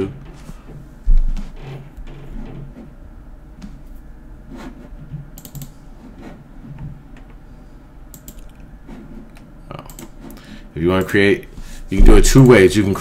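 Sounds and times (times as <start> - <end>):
low steady hum: 0.0 - 13.0
mouse and keyboard clicks: 5.4 - 5.7, 8.1 - 8.6.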